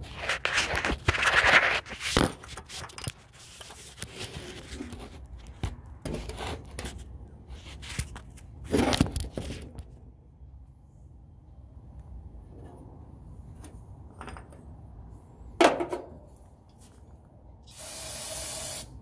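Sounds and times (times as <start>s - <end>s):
handling noise scraping and rustling: 0.0s - 10.1s, 12.4s - 17.4s
aerosol can spraying: 17.8s - 18.9s.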